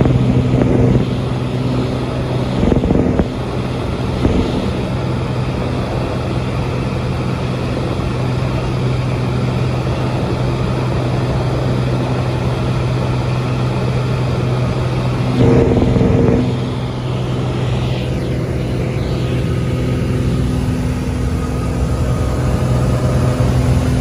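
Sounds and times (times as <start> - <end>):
rush of noise: 0.0 - 6.8, 14.3 - 24.0
propeller plane engine drone: 0.0 - 24.0.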